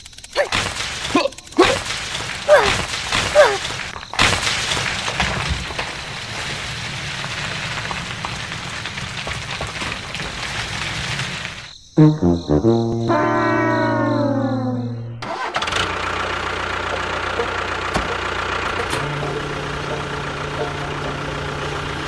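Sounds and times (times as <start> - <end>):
rumbling engine-like hiss: 16.0 - 22.0.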